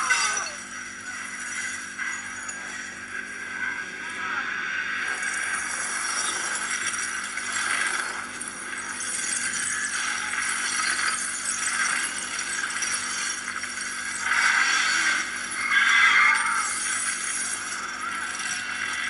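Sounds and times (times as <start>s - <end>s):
glass shards shattering and clinking: 0.0s - 3.0s, 5.2s - 19.0s.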